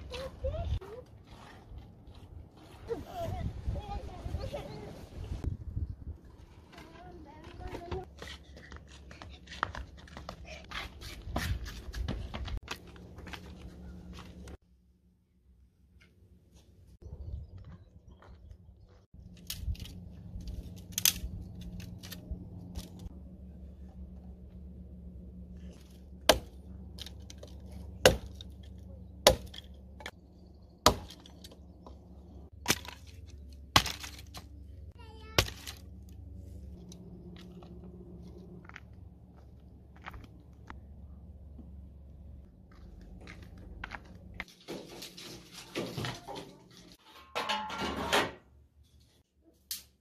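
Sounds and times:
footsteps on concrete: 0:06.6 - 0:14.6, 0:37.4 - 0:40.8, 0:41.5 - 0:44.5
low rumble: 0:17.0 - 0:32.6
hatchet chopping wood: 0:26.2 - 0:29.7, 0:30.8 - 0:31.6, 0:32.6 - 0:34.4.

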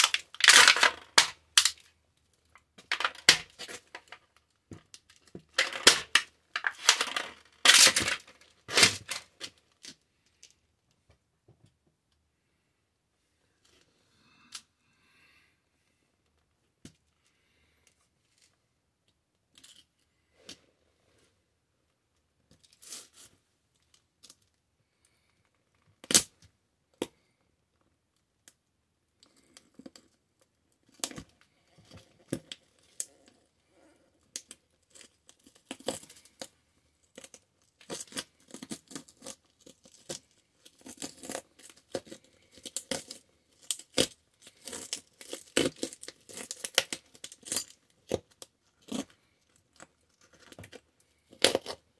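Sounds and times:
metal toy crunching under boot: 0:00.0 - 0:01.9, 0:02.8 - 0:09.6, 0:37.3 - 0:49.2.

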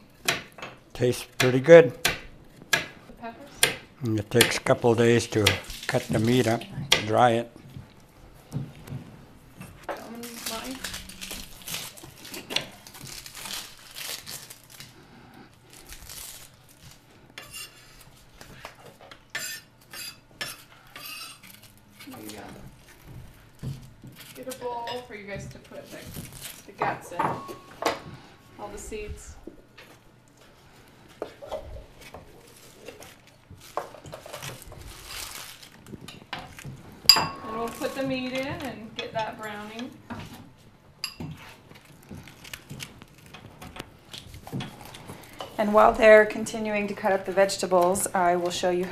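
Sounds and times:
knives chopping on cutting boards: 0:01.4 - 0:03.0.

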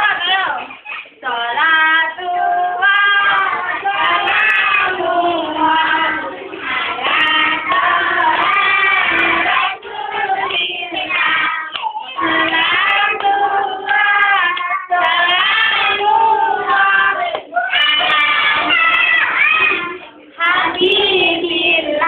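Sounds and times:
children singing: 0:00.0 - 0:22.0.

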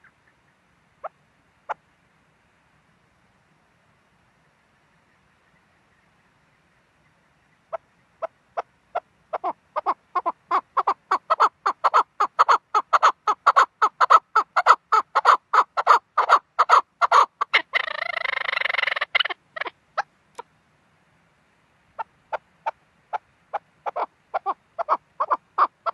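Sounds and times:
partridge chuck calls: 0:00.0 - 0:01.8, 0:07.0 - 0:20.5, 0:21.9 - 0:25.9.

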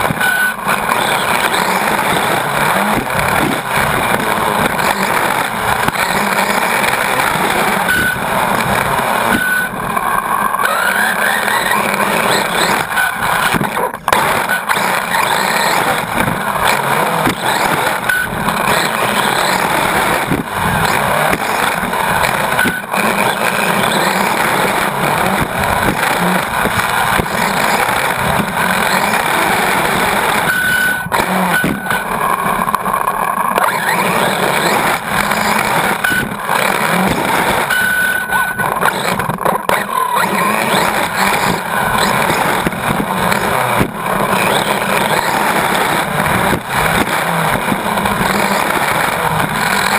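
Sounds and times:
electric motor whine: 0:00.0 - 0:49.9
rc car rattling on dirt: 0:00.0 - 0:49.9
sharp knocks from landings: 0:12.6 - 0:19.0, 0:19.7 - 0:28.6, 0:31.0 - 0:37.8, 0:38.6 - 0:45.7.

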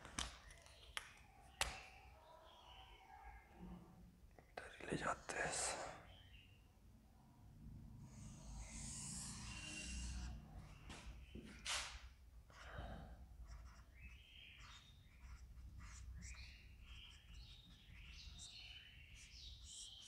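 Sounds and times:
marker squeaking on whiteboard: 0:08.1 - 0:12.6, 0:13.4 - 0:20.0.

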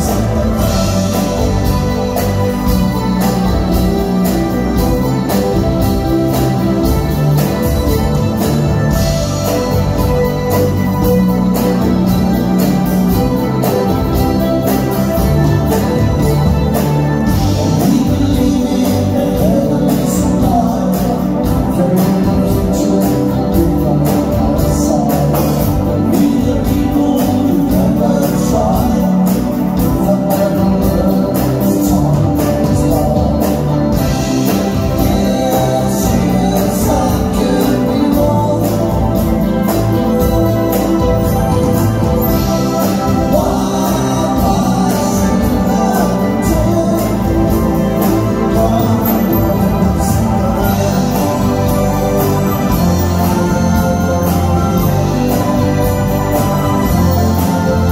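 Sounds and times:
rock band playing live: 0:00.0 - 0:57.9
man singing into microphone: 0:17.3 - 0:39.8, 0:42.9 - 0:54.5.

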